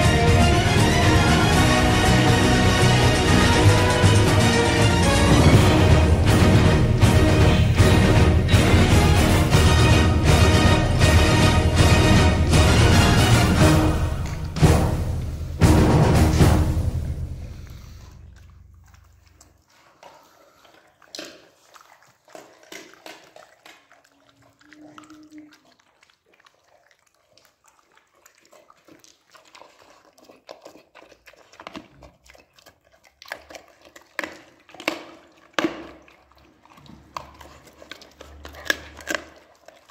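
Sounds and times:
dog chewing and lapping: 0.0 - 14.9, 17.5 - 39.9
teeth clicking against bowl: 18.4 - 27.6, 28.2 - 39.9.

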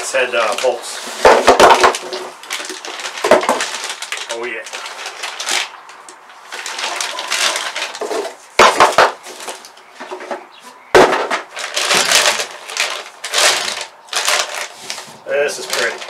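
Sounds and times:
plastic bag crinkling: 0.0 - 9.8, 11.0 - 16.0
sharp thumps: 8.0 - 12.4.

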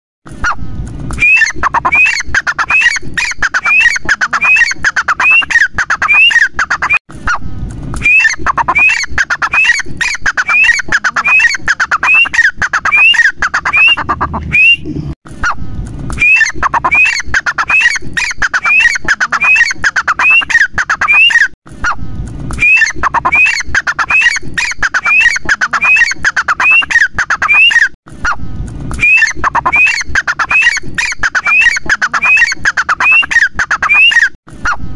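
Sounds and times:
francolin calling: 10.4 - 14.8, 29.0 - 34.2.

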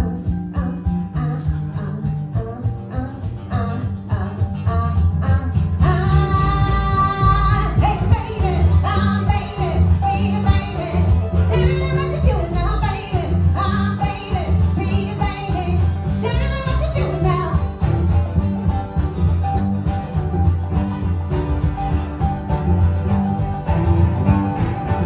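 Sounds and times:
woman singing: 0.0 - 17.8
acoustic guitar: 0.0 - 25.0
bowed cello melody: 0.0 - 25.0
mandolin: 0.0 - 25.0
upright bass pulsing: 0.0 - 25.0.

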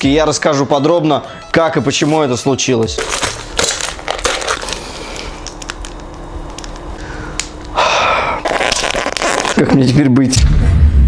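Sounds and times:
foil packet crinkling: 2.8 - 7.6, 8.3 - 9.9
crisps crunching: 2.9 - 7.6, 8.3 - 9.8.

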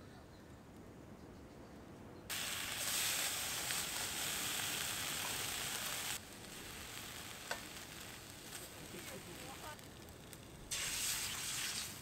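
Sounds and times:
meat sizzling in a frying pan: 2.3 - 12.0.

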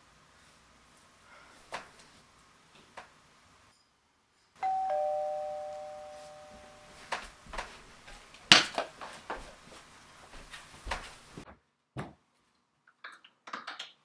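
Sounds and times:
two-note doorbell chime: 4.6 - 7.0.

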